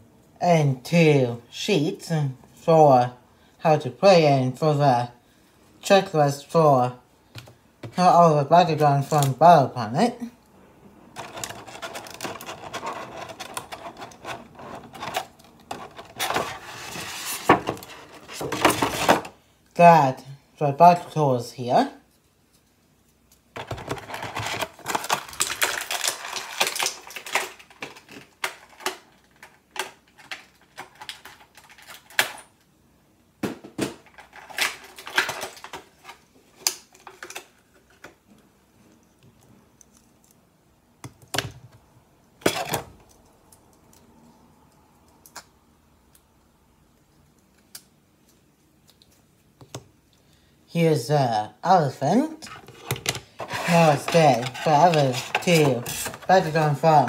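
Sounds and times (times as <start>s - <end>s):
packaging crinkling and rustling: 23.6s - 32.5s, 34.0s - 38.2s, 52.5s - 57.0s.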